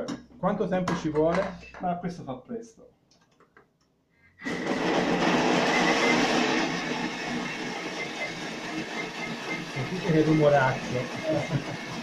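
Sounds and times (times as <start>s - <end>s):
food processor blending: 4.4s - 12.0s.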